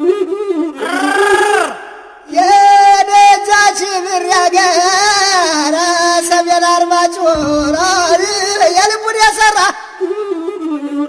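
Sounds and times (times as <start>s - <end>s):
wavering wordless vocal melody: 0.0s - 11.0s.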